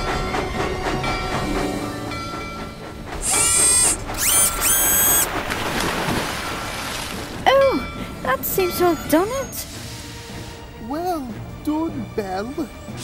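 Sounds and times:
background music: 0:00.0 - 0:05.4, 0:06.0 - 0:13.0.

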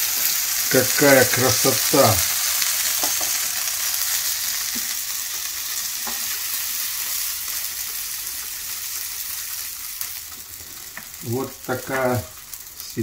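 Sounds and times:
food sizzling on a grill: 0:00.0 - 0:13.0.

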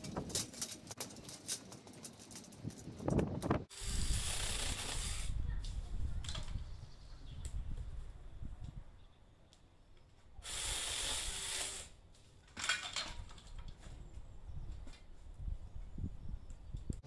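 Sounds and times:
mini chainsaw cutting branch: 0:03.7 - 0:05.4, 0:10.4 - 0:11.9.

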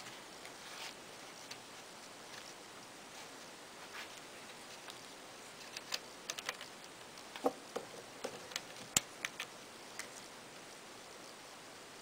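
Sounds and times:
small metallic clicks and taps: 0:05.6 - 0:10.2.

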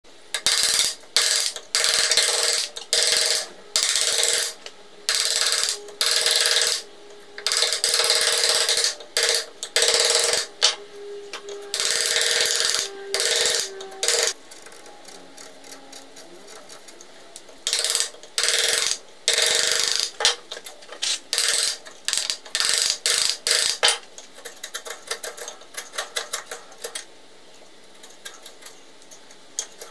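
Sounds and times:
chisel paring wood: 0:17.7 - 0:27.0.

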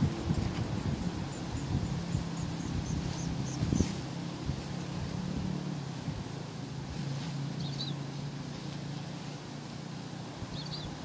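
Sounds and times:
engine humming: 0:00.0 - 0:11.0
small bird chirps: 0:01.3 - 0:04.0, 0:07.6 - 0:08.3, 0:10.5 - 0:11.0.

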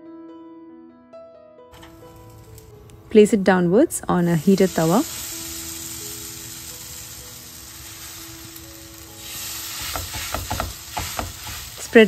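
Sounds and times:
bread sizzling on hot pan: 0:01.8 - 0:03.2, 0:04.2 - 0:12.0.

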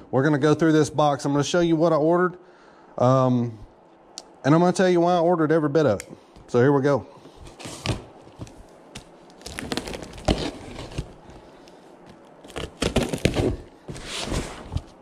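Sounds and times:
tape and cardboard crackling: 0:07.3 - 0:15.0
knife slicing packing tape: 0:09.0 - 0:11.2, 0:12.4 - 0:14.7.

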